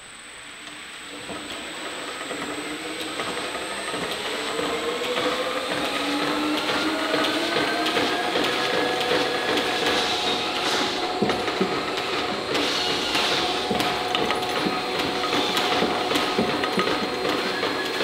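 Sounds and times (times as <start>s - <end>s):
belt drive whine rising: 0.0s - 18.0s
mechanical ticking and rattling: 2.2s - 18.0s.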